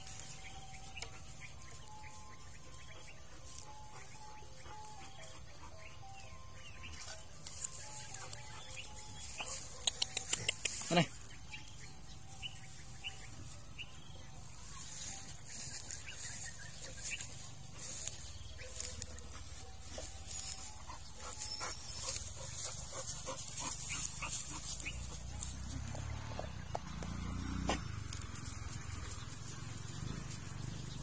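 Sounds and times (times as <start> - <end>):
rustling grass stems: 12.6 - 25.9
dog sniffing: 19.1 - 25.3.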